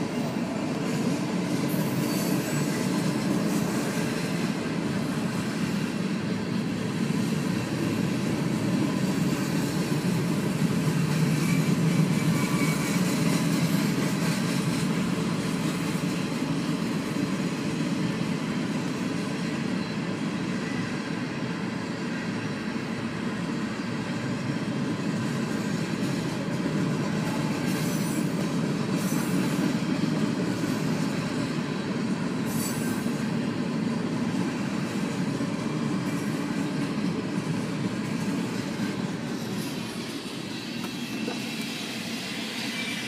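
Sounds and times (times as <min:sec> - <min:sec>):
freight train rolling on tracks: 0:00.0 - 0:43.0
high-pitched wheel squeals: 0:01.7 - 0:02.9, 0:11.4 - 0:13.9, 0:32.5 - 0:33.2, 0:39.4 - 0:43.0.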